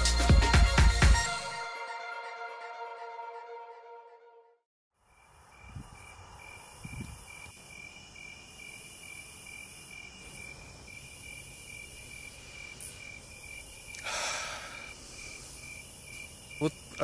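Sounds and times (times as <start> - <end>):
crickets chirping: 5.0 - 17.0
high hissing insect trill: 5.1 - 17.0.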